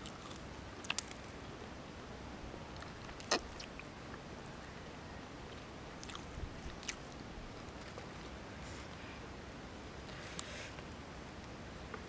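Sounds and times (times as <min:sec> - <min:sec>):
close-up chewing: 0:00.0 - 0:01.2, 0:05.5 - 0:08.9.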